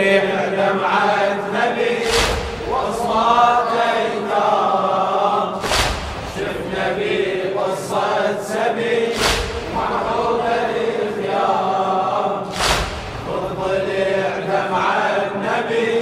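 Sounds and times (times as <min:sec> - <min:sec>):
crowd of men chanting in unison: 0:00.0 - 0:16.0
chest-beating thuds: 0:02.0 - 0:02.9, 0:05.6 - 0:06.6, 0:09.2 - 0:10.2, 0:12.5 - 0:13.4.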